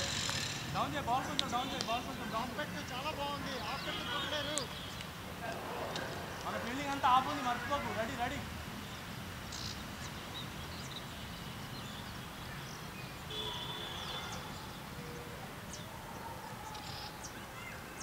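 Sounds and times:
open-air background noise: 0.0 - 18.0
faint bird chirps: 8.9 - 18.0.

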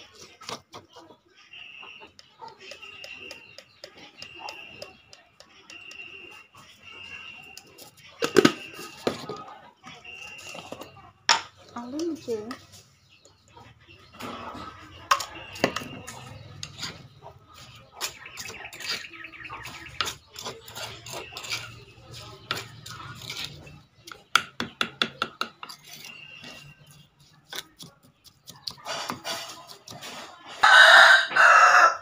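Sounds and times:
metal spoon scraping a mortar: 1.9 - 9.4, 14.0 - 30.6
spoon tapping: 2.2 - 6.1.

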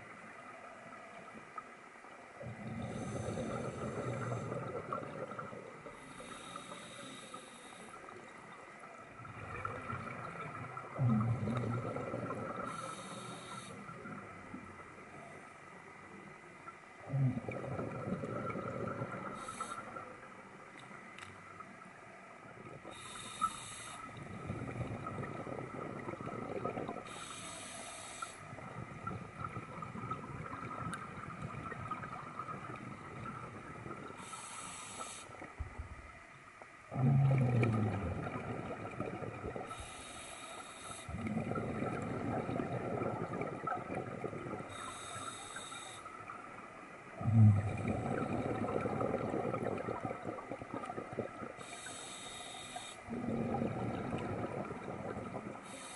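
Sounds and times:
exhaled air bubbling: 2.3 - 7.3, 8.0 - 15.5, 16.7 - 36.2, 36.9 - 55.9
regulator inhale hiss: 2.8 - 4.5, 6.0 - 8.2, 12.6 - 14.0, 19.2 - 20.0, 22.9 - 24.2, 27.0 - 28.6, 34.2 - 35.5, 39.6 - 41.2, 44.6 - 46.3, 51.5 - 53.1, 55.5 - 55.9.

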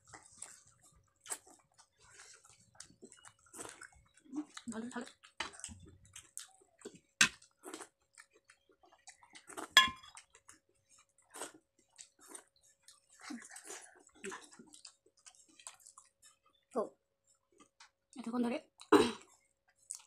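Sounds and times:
wet chewing and lip-smacking: 0.0 - 18.1, 18.8 - 20.0
ceramic plate clinks: 9.8 - 10.1.

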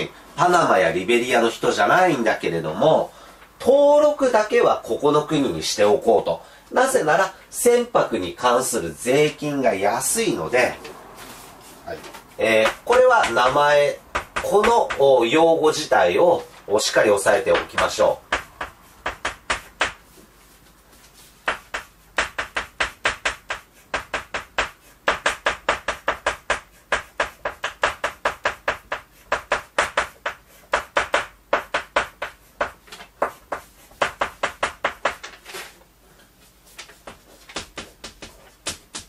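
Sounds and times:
chalk tapping on a blackboard: 12.4 - 15.0, 17.3 - 20.3, 21.0 - 35.4, 36.7 - 39.0.

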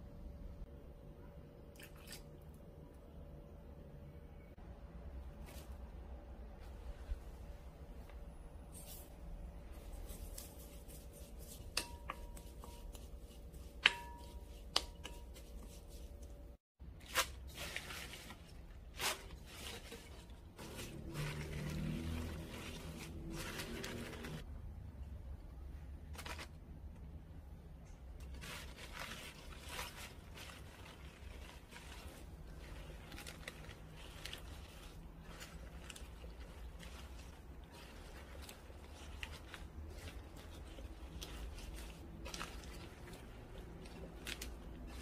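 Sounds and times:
leaves rustling and squishing: 8.7 - 24.5, 26.1 - 26.6, 28.2 - 45.0.

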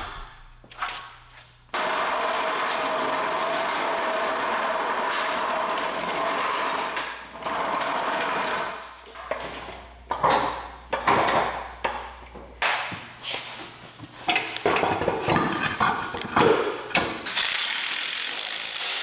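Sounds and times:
floor jack wheels clattering on concrete: 1.8 - 13.1, 14.2 - 17.2.

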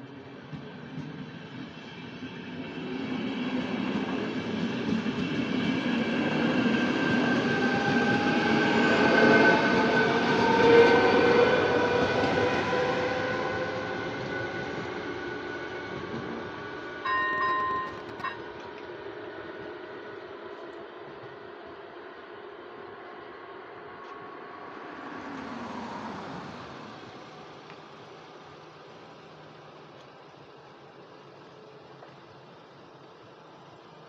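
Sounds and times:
passenger train passing: 0.0 - 34.0.

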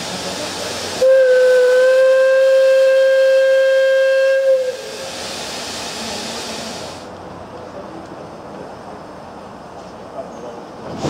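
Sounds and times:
steam hissing: 0.0 - 7.1
steam whistle blowing: 1.0 - 5.0.

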